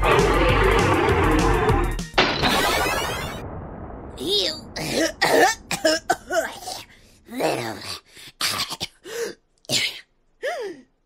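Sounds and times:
cartoon voice coughing and hacking: 4.8 - 9.0.

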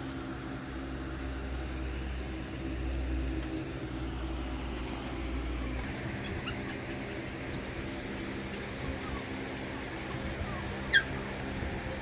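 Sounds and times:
low hum: 0.0 - 12.0
puppies squeaking: 5.8 - 12.0.

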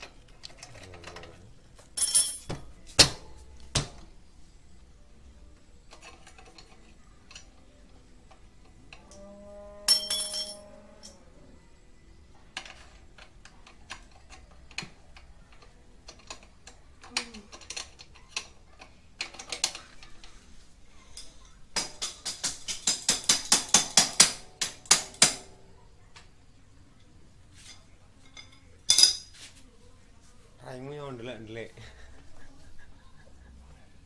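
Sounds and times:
metal tools clinking: 0.0 - 2.6, 9.9 - 11.2, 27.6 - 29.4
ringing metal clank: 9.8 - 11.2.

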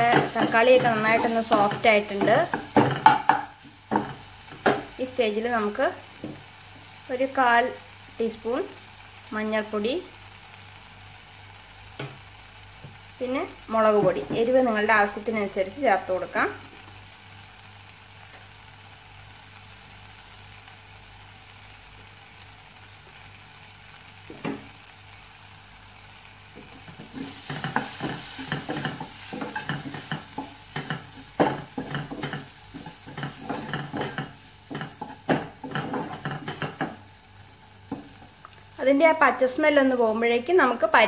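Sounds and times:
spatula scraping pan: 0.0 - 4.9, 26.6 - 38.4
masala sizzling in oil: 0.0 - 41.0
knock on pan: 2.2 - 4.9, 24.3 - 24.7.

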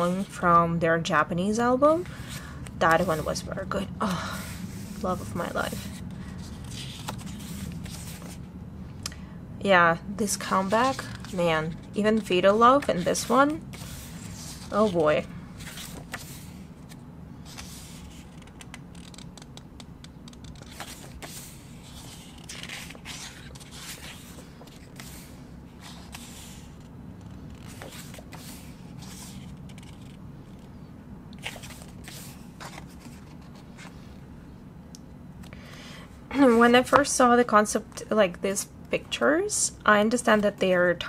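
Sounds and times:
low steady hum: 0.0 - 41.0
book pages turning: 2.0 - 3.5, 4.3 - 8.4, 10.4 - 30.8, 31.4 - 34.2.

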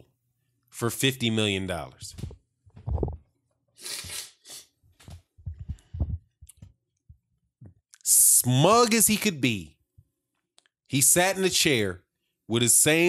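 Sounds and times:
man breathing: 5.5 - 6.4.

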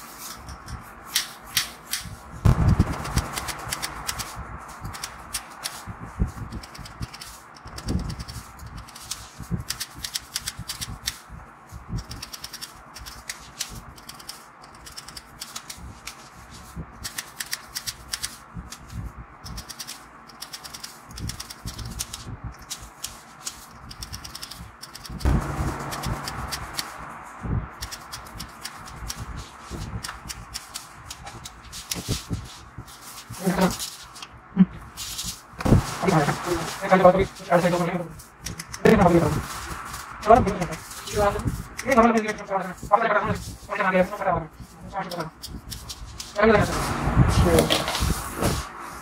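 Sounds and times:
scissors snipping hair: 1.1 - 2.1, 3.3 - 5.8, 6.6 - 11.2, 12.0 - 16.2, 17.0 - 18.8, 19.4 - 25.3, 27.8 - 29.3, 38.4 - 38.9, 41.7 - 42.4
loud rushing noise: 2.4 - 6.6, 25.2 - 30.5, 35.6 - 41.8, 46.4 - 49.0.

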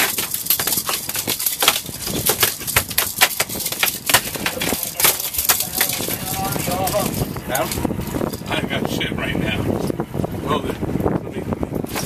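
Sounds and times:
fish flopping on boat deck: 0.0 - 8.5.

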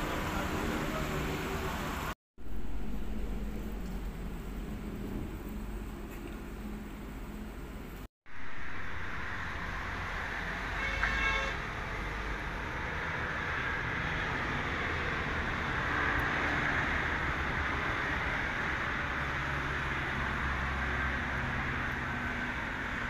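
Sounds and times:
road traffic noise: 0.0 - 23.0
vehicle horn toot: 10.7 - 11.6.

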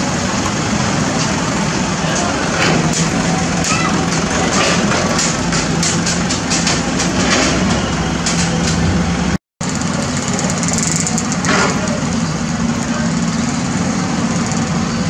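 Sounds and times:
diesel engines running: 0.0 - 15.0
soil and rubble clattering: 0.2 - 8.8.

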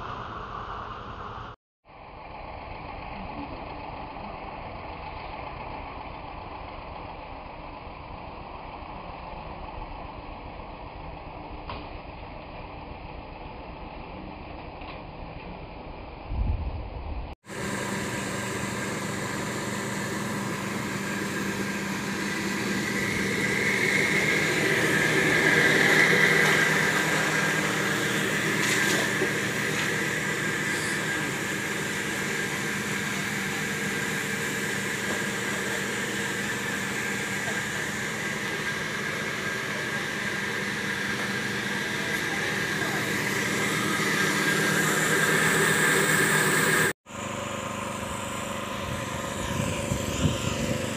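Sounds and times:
motor humming: 17.5 - 50.9.

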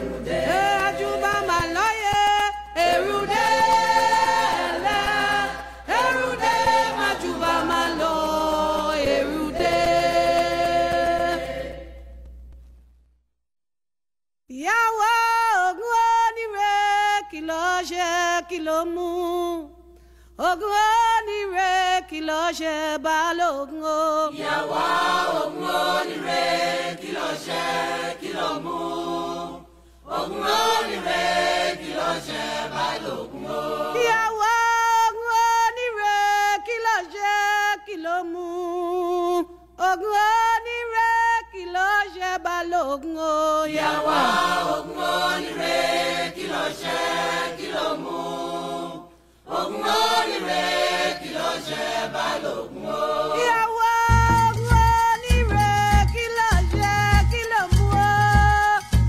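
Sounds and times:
lone voice singing with vibrato: 0.0 - 12.0, 14.5 - 26.6, 27.2 - 59.0
group singing in harmony: 0.0 - 12.3, 23.8 - 37.1, 42.2 - 59.0.

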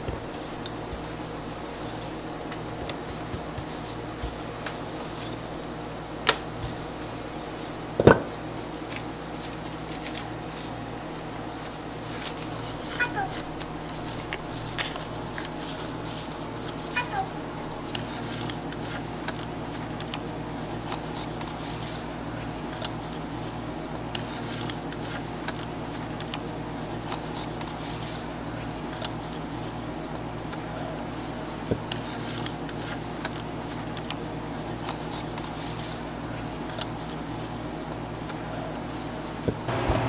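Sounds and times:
steady machine hum: 0.0 - 20.8, 39.2 - 40.0.

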